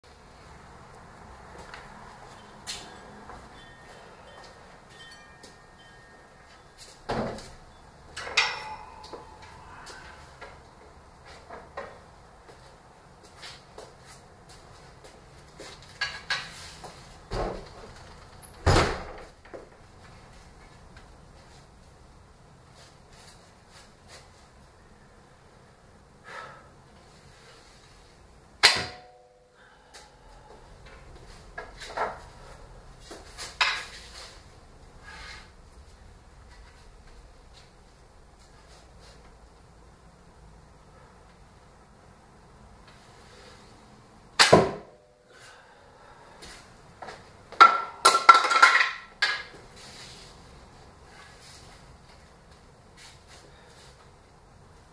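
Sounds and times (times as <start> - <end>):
bow ringing hum: 2.3 - 10.8.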